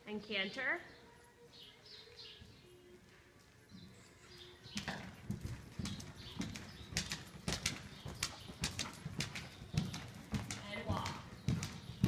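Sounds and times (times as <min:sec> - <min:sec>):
horse hoofbeats cantering: 0:04.6 - 0:12.0.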